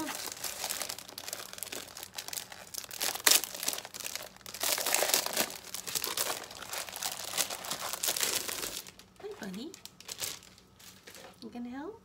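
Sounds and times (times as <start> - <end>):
papers rustling: 0.0 - 11.4
plastic sleeve crinkling: 0.0 - 11.4.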